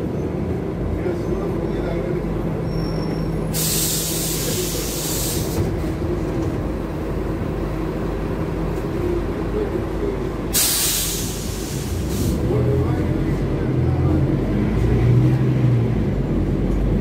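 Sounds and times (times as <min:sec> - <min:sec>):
bus engine humming: 0:00.0 - 0:17.0
compressed air hiss: 0:03.5 - 0:05.6, 0:10.5 - 0:12.4.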